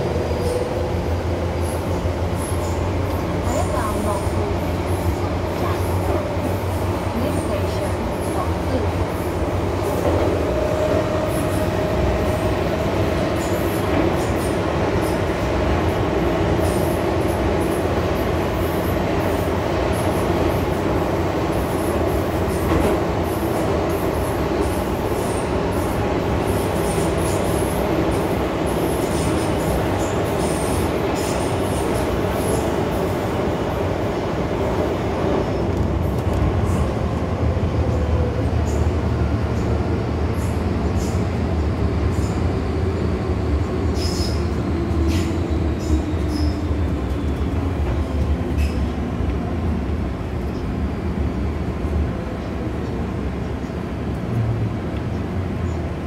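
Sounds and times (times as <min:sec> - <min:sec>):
train wheels rumbling in tunnel: 0:00.0 - 0:56.0.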